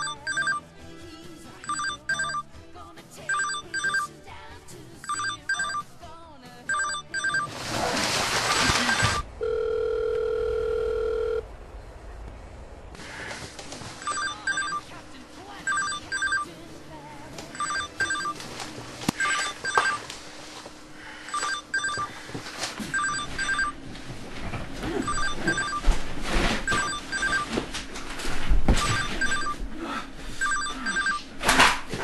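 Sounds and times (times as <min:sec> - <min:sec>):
electronic telephone ringing: 0:00.0 - 0:00.6, 0:01.6 - 0:02.4, 0:03.3 - 0:04.1, 0:05.0 - 0:05.8, 0:06.7 - 0:07.5, 0:08.6 - 0:11.4, 0:14.0 - 0:14.9, 0:15.7 - 0:16.5, 0:17.5 - 0:18.4, 0:19.2 - 0:20.0, 0:21.3 - 0:22.2, 0:22.8 - 0:23.8, 0:25.0 - 0:25.8, 0:26.7 - 0:27.6, 0:28.8 - 0:29.6, 0:30.4 - 0:31.2
rustling: 0:07.3 - 0:09.2.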